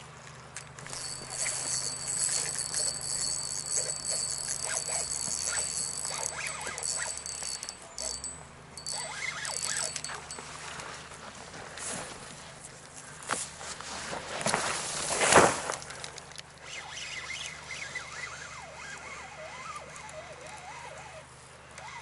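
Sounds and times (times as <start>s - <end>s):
light clicks and handling rustles: 0.1s - 16.8s
fishing reel whirring: 0.8s - 10.4s, 16.6s - 21.2s.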